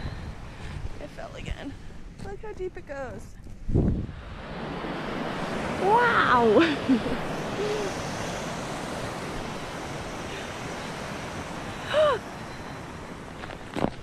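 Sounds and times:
creek water rushing: 0:04.2 - 0:13.2.

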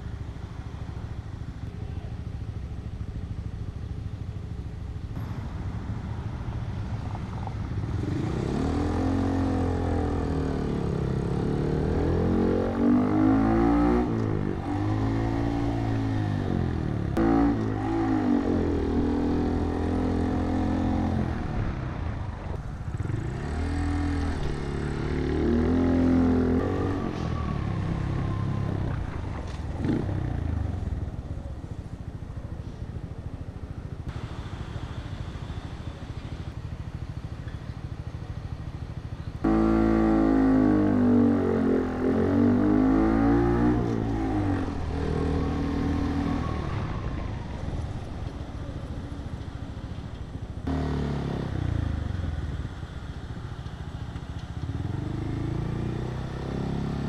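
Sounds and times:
motorcycle engine revving: 0:07.0 - 0:31.1, 0:39.4 - 0:57.0.

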